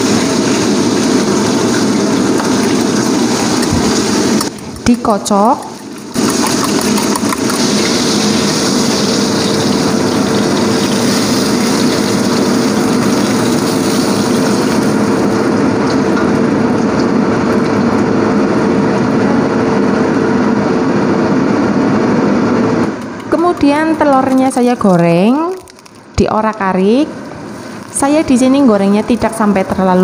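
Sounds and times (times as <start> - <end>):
range hood fan humming: 0.0 - 30.0
meat sizzling in a pan: 6.1 - 15.3.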